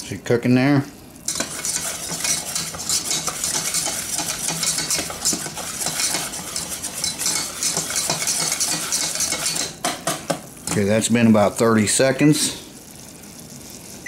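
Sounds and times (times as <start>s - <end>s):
roux sizzling: 0.5s - 14.0s
whisk scraping a metal pan: 1.3s - 10.2s.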